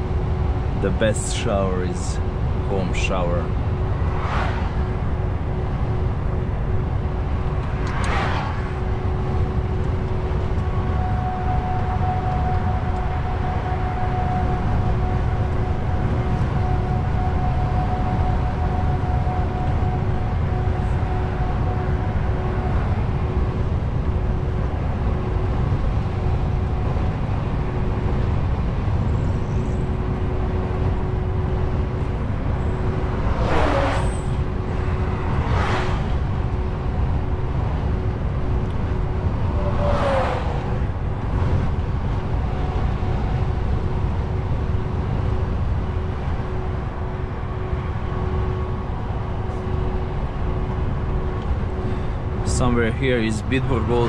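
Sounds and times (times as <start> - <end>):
truck engine and road noise: 0.0 - 54.0
vehicles swishing past: 0.6 - 24.9, 29.9 - 43.5.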